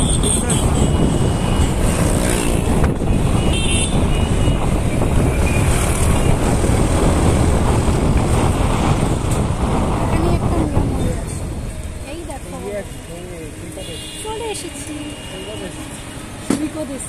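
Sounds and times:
passing traffic engines: 0.0s - 17.0s
heavy low rumble: 0.6s - 13.6s.

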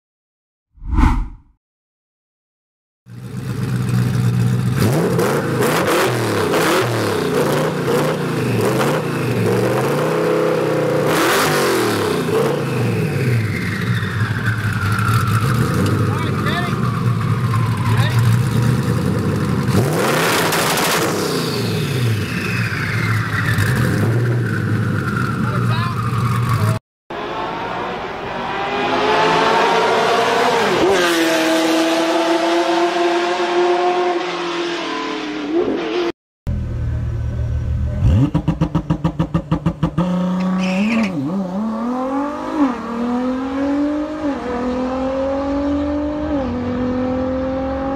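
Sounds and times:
car engine revving and idling: 36.5s - 40.6s.

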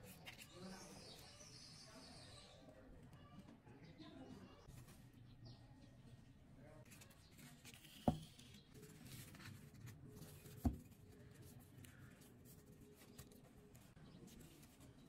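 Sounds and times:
paper rustling: 6.9s - 15.0s.

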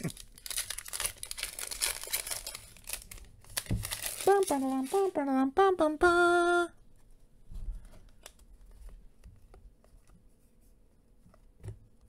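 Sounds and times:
trading cards rustling: 0.0s - 5.1s
foil pack crinkling: 0.0s - 5.2s.

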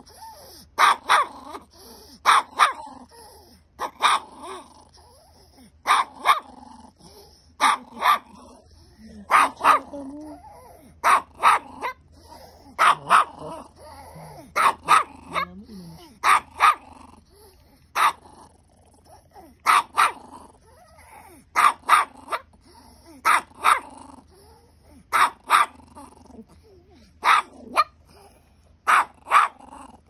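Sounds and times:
small dog barking: 0.8s - 3.0s, 3.8s - 4.7s, 5.8s - 6.6s, 7.6s - 8.5s, 9.2s - 12.0s, 12.7s - 17.0s, 17.9s - 18.3s, 19.6s - 20.3s, 21.5s - 22.5s, 23.2s - 24.0s, 25.1s - 25.9s, 27.0s - 28.0s, 28.8s - 29.8s.

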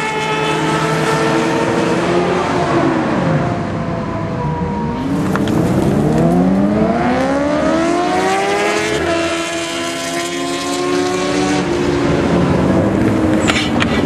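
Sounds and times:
motorcycles accelerating hard: 5.0s - 14.0s.

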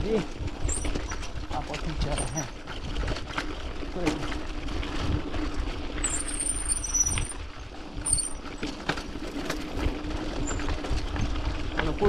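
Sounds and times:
bike clicks and rattles: 0.0s - 12.0s
bike tyres crunching on gravel: 0.1s - 12.0s.

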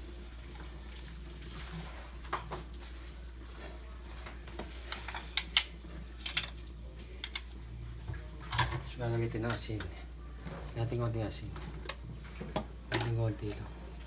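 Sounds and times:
kitchen utensils clinking: 4.4s - 7.5s, 8.3s - 10.9s.

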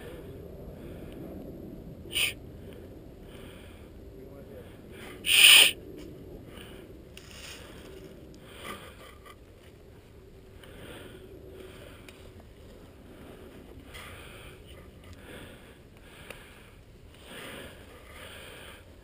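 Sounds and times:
person breathing softly: 0.0s - 1.4s, 2.1s - 5.8s, 10.5s - 19.0s.

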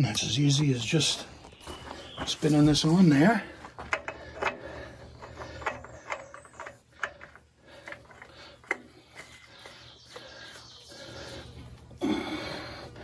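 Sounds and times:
oil filter clicking and scraping: 3.5s - 10.4s.

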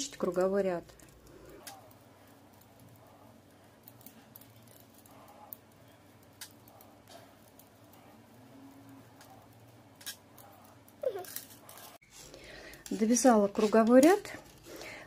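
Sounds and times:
knitting needles clicking: 0.0s - 12.0s.

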